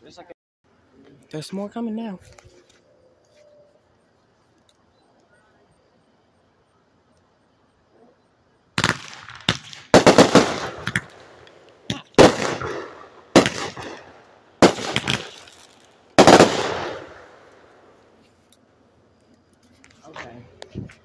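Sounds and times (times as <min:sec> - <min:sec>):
fireworks bangs: 0:08.8 - 0:17.8.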